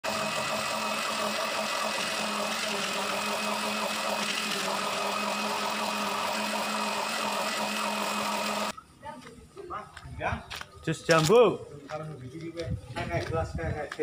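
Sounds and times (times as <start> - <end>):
blender motor running: 0.0 - 8.7.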